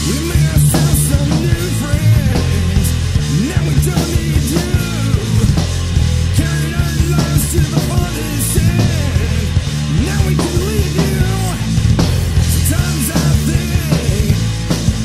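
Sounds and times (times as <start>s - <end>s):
bass guitar: 0.0s - 15.0s
distorted electric guitars: 0.0s - 15.0s
drum kit with crashing cymbals: 0.0s - 15.0s.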